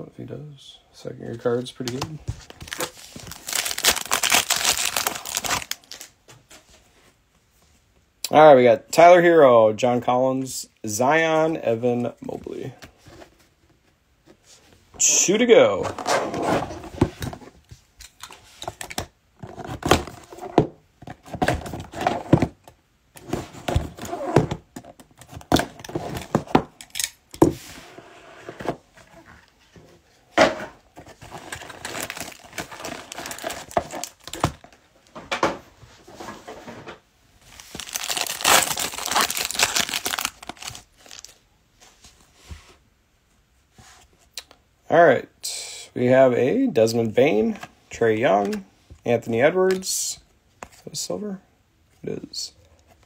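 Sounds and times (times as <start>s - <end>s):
foil wrapper tearing and crinkling: 2.7s - 6.0s, 31.7s - 34.5s, 37.6s - 41.3s
cardboard box rustling: 37.5s - 41.3s.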